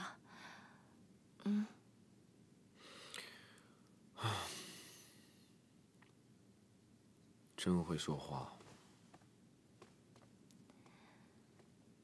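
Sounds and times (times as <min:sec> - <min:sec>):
soft breaths: 0:00.0 - 0:01.8, 0:02.7 - 0:05.7, 0:10.6 - 0:11.8
man's breathy sigh: 0:02.8 - 0:05.5.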